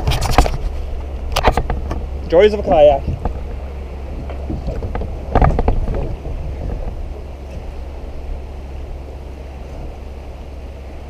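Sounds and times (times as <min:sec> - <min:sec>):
knocks and rattles on kayak: 0:00.0 - 0:08.5
wind buffeting microphone: 0:00.0 - 0:11.0.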